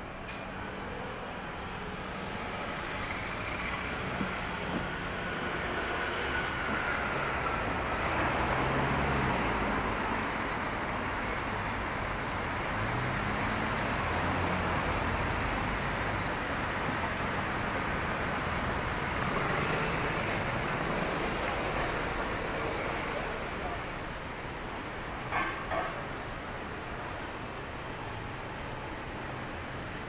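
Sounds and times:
cars driving past: 2.2s - 10.5s.

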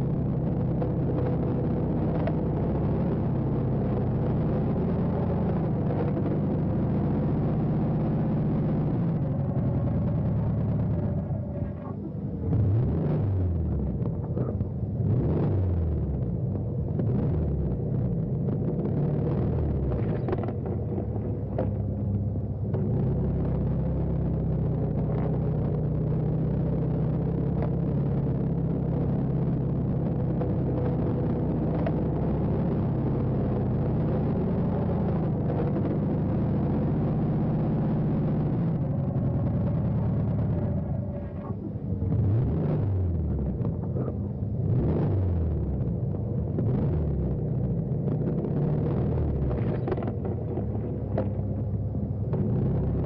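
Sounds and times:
car engine running: 0.0s - 53.0s.

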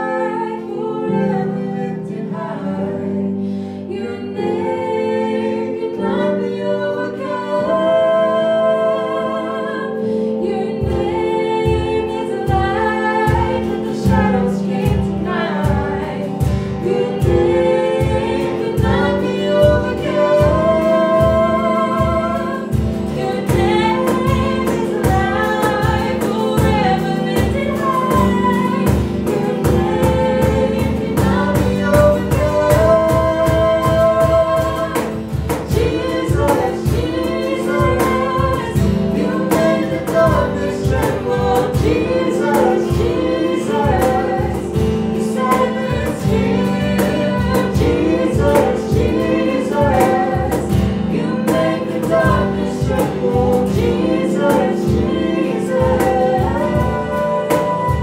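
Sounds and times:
voices singing together: 0.0s - 58.0s
acoustic guitar strumming: 12.5s - 58.0s.

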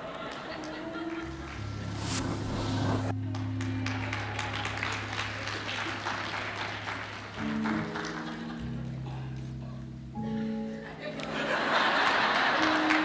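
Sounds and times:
audience clapping: 0.0s - 1.9s, 3.1s - 9.5s, 11.2s - 13.0s.

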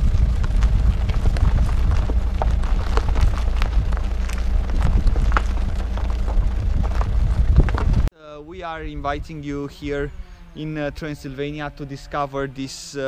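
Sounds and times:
footsteps on gravel: 0.0s - 8.1s
wind buffeting microphone: 0.0s - 10.4s.

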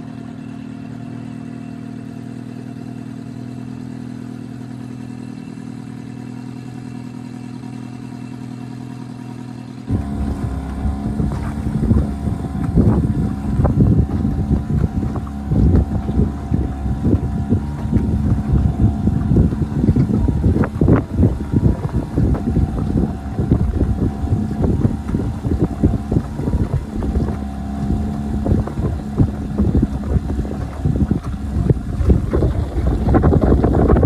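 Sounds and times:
outboard motor running: 0.0s - 34.0s
wind buffeting microphone: 9.9s - 34.0s.

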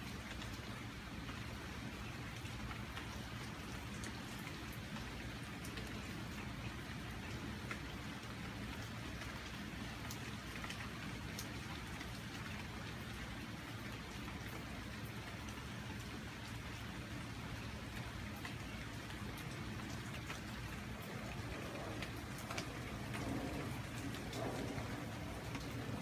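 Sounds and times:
rain falling on leaves: 0.0s - 26.0s.

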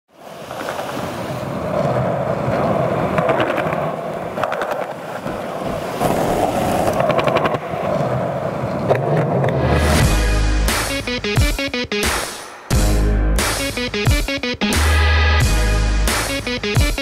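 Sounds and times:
skateboard wheels rolling on concrete: 0.1s - 10.2s.

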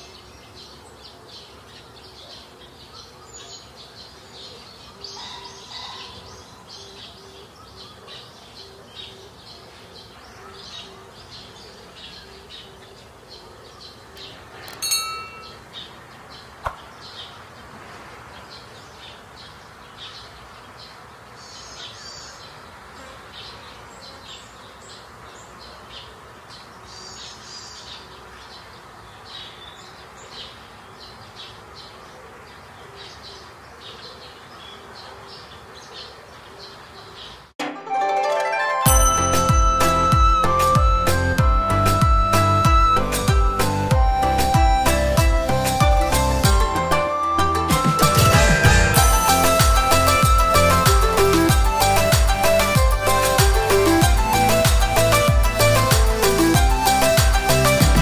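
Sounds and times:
birds chirping: 0.0s - 37.6s, 38.5s - 58.0s
bright chime: 14.8s - 15.6s, 37.8s - 41.2s, 47.0s - 51.3s.

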